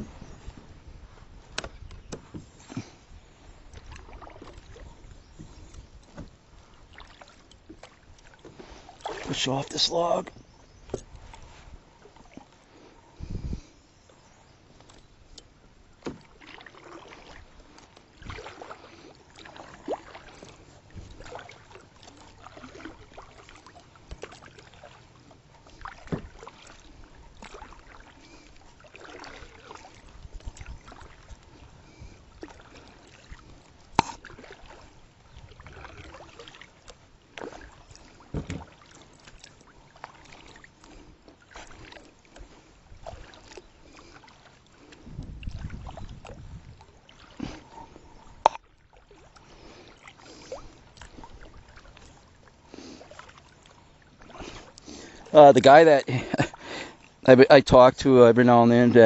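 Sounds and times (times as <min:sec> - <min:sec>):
paddle swishing through water: 0:00.0 - 0:57.4.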